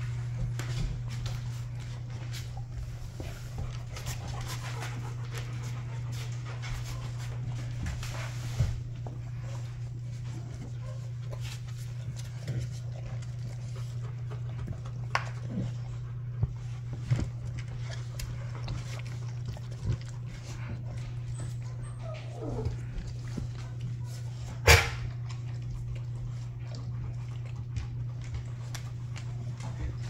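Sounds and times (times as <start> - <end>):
paws tapping on wooden floor: 0.0 - 30.0
steady low hum: 0.0 - 30.0
puppy whimper: 21.1 - 23.2.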